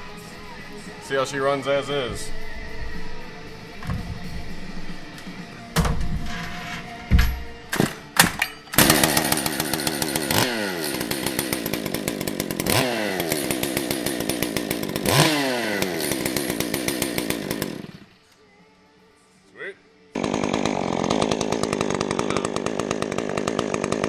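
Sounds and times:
chainsaw starter pulls: 6.0s - 18.0s, 20.2s - 24.0s
chainsaw engine revving: 8.7s - 18.1s, 20.2s - 24.0s.

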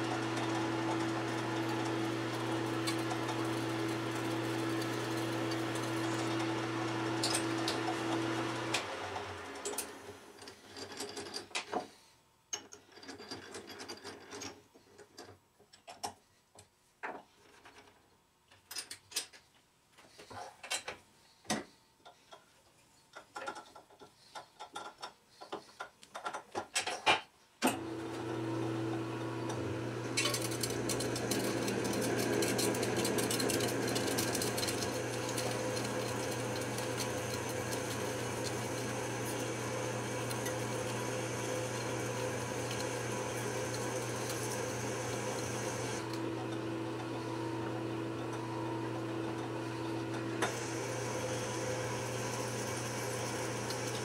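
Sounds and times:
lathe humming: 0.0s - 10.0s, 27.8s - 54.0s
drill cutting into workpiece: 30.2s - 46.3s, 50.4s - 54.0s.

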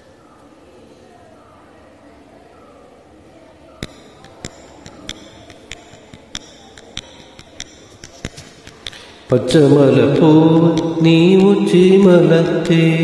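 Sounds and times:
faint ringing: 3.8s - 13.0s
sharp percussion taps: 3.8s - 13.0s.

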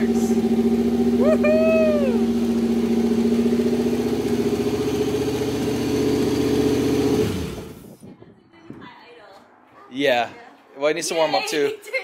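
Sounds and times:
car engine running: 0.0s - 8.0s.

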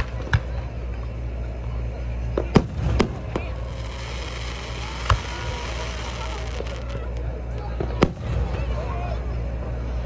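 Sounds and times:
fireworks bangs: 2.5s - 7.2s
fireworks crackling hiss: 2.5s - 7.3s.

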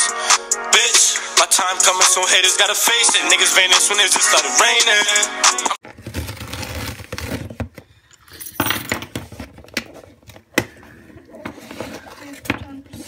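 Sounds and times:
packing tape tearing: 5.8s - 7.7s
cardboard rustling and scraping: 5.8s - 7.8s, 9.1s - 13.0s.

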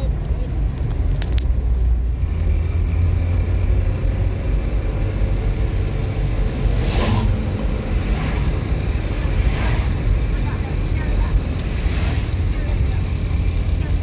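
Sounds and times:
passing car whoosh: 5.3s - 10.5s, 11.3s - 13.0s.

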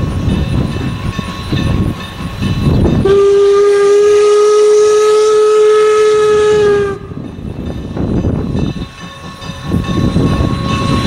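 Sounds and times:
steam locomotive whistle: 3.0s - 7.2s.

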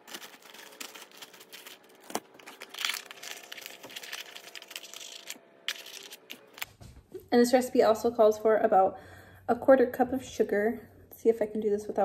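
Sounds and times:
bag crinkling and rustling: 0.0s - 6.6s.

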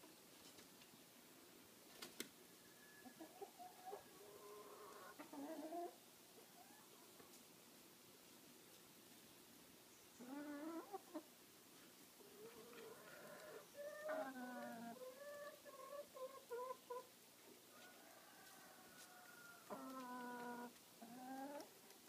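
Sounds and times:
hens calling: 3.0s - 7.0s, 10.2s - 11.3s, 12.2s - 17.1s, 17.8s - 21.7s.

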